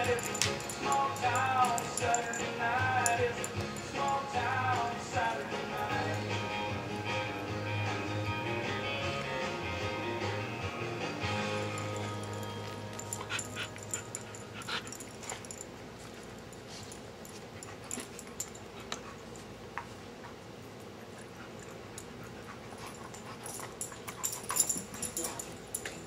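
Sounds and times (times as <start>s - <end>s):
background music: 0.0s - 14.3s.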